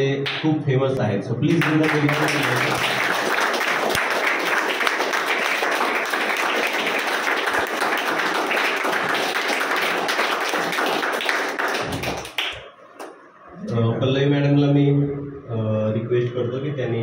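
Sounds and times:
children clapping: 1.4 - 13.2.

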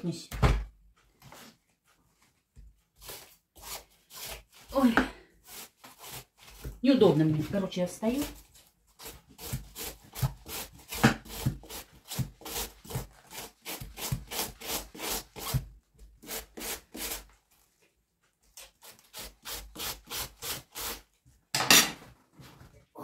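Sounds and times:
knife shredding cabbage: 3.0 - 17.4, 18.5 - 21.2.

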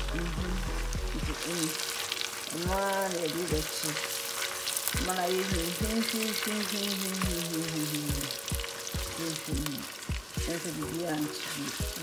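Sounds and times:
afrobeat instrumental music: 0.0 - 1.5, 8.1 - 10.9
onions sizzling in hot oil: 0.0 - 12.0
spatula stirring in pot: 2.2 - 7.5.

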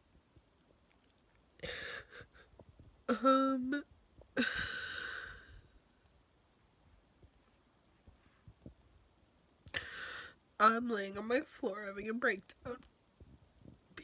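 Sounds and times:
woman breathing: 1.6 - 2.6, 4.4 - 5.9, 9.7 - 10.4
woman sobbing: 1.6 - 3.8, 4.4 - 5.6.

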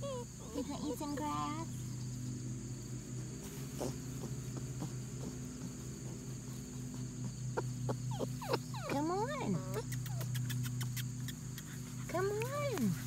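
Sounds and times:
insects chirring: 0.0 - 13.0
faint ticks: 9.7 - 13.0.

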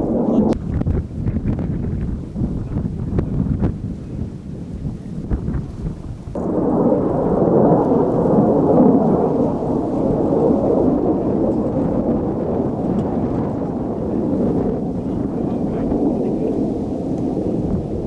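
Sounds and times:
jet engine rumble: 0.0 - 18.0.

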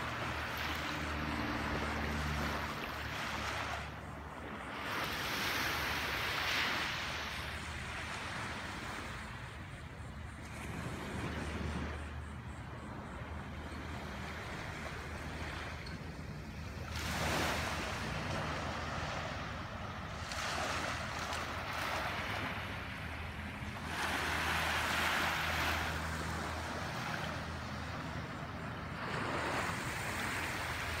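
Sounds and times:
small waves washing onto shore: 14.0 - 31.0.

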